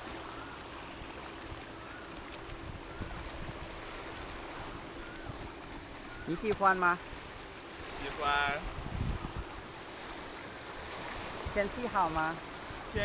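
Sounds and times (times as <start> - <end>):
wind on microphone: 2.5 - 6.6, 8.0 - 9.9, 10.9 - 13.0.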